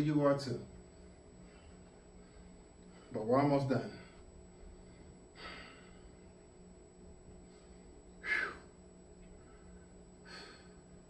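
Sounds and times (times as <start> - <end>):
man breathing hard: 4.0 - 6.3, 7.4 - 8.8, 9.4 - 11.0.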